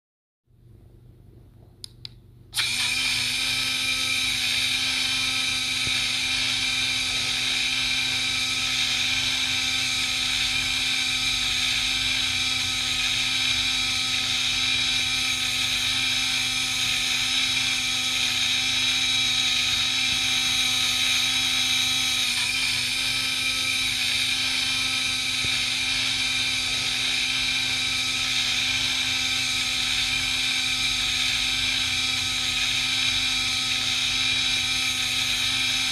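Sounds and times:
blender motor whining: 2.6 - 35.9.

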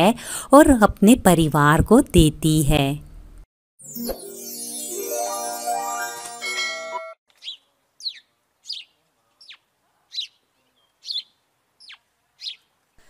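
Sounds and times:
music jingle: 3.8 - 7.2
bird chirping: 7.3 - 12.7.

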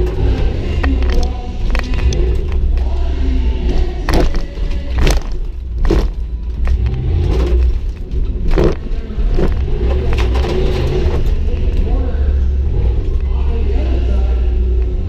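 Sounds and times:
truck bangs and rattles over bumps: 0.0 - 3.0, 3.6 - 13.2
engine revving hard: 5.9 - 7.8, 8.4 - 14.6.

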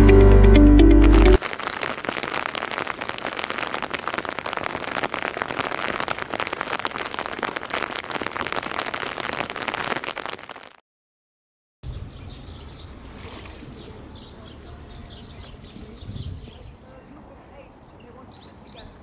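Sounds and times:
steady rain falling: 1.0 - 10.8.

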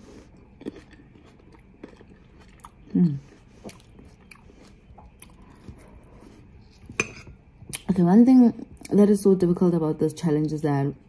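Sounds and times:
person chewing fruit: 0.0 - 7.0.

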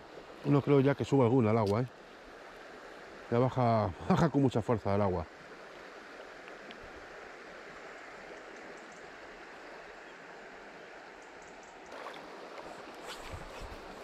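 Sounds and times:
fast-flowing river: 0.0 - 14.0
light clicks: 1.6 - 1.8.

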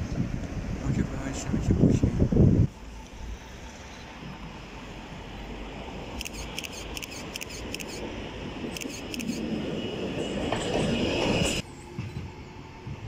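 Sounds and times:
street noise: 0.0 - 13.0
tram approaching on rails: 0.0 - 13.0
camera shutter clicking: 6.2 - 8.0, 8.8 - 9.4.

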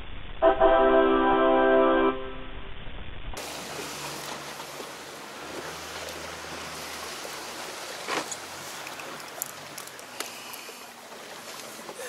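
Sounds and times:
low hum: 0.0 - 11.0
water splashing against boat: 3.4 - 12.0.

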